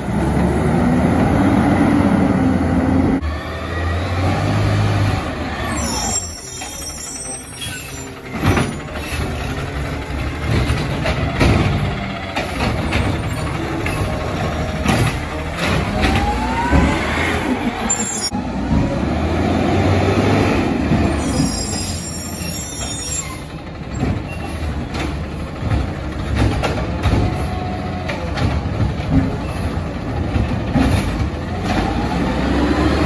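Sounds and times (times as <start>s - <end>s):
garbage truck engine running: 0.0s - 33.0s
truck clunks: 5.3s - 19.2s, 20.6s - 33.0s.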